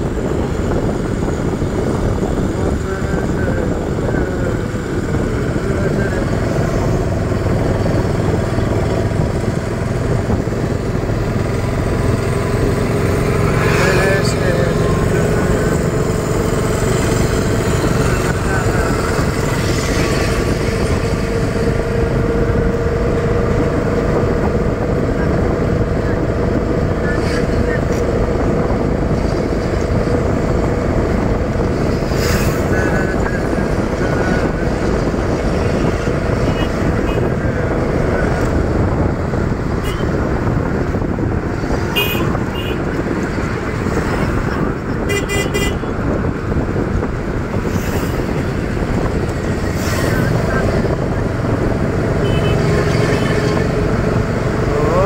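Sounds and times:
auto-rickshaw engine running: 0:00.0 - 0:55.0
vehicle horn toots: 0:39.8 - 0:40.2, 0:41.9 - 0:42.9, 0:45.1 - 0:45.9, 0:52.2 - 0:53.3
horn beeps: 0:52.2 - 0:53.4.

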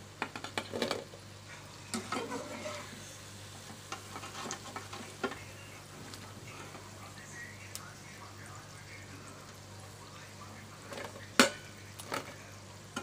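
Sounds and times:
food sizzling in hot oil: 0:00.0 - 0:13.0
metal spatula scraping pan: 0:01.9 - 0:03.0.

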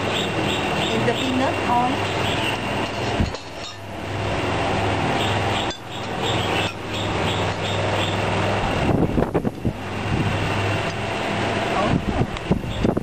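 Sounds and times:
low hum: 0:00.0 - 0:13.0.

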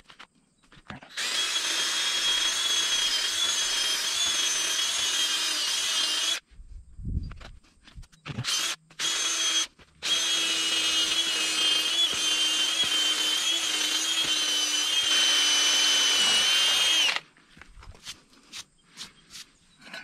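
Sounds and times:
cordless drill boring into stone: 0:01.1 - 0:06.4, 0:08.4 - 0:17.2.

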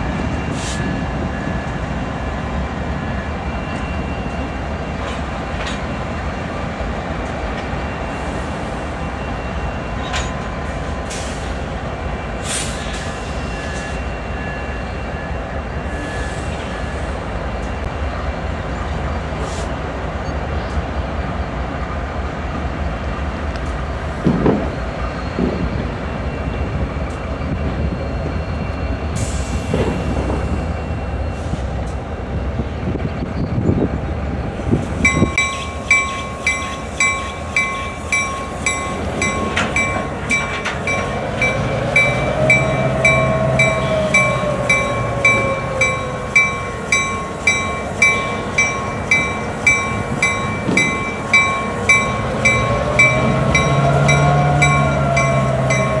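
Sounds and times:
diesel locomotive engine rumble: 0:00.0 - 0:56.0
locomotive bell ringing: 0:35.0 - 0:56.0
drawn-out squeal: 0:35.4 - 0:56.0.

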